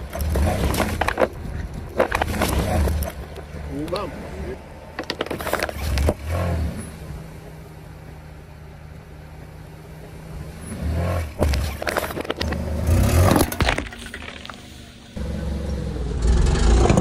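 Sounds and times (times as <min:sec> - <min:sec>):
car engine humming: 0:00.0 - 0:17.0
tyre crushing plastic bottles: 0:13.2 - 0:14.6.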